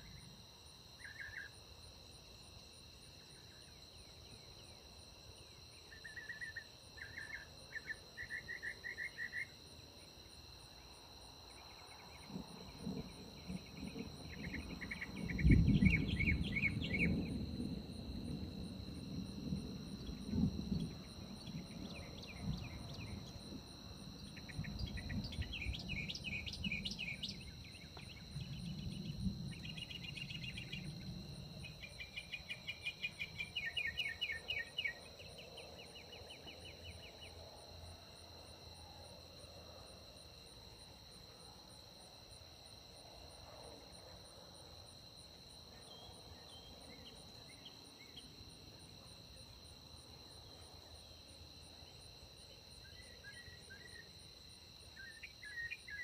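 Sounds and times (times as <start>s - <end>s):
night insects trilling: 0.0s - 56.0s
rolling thunder rumbling: 12.3s - 32.0s.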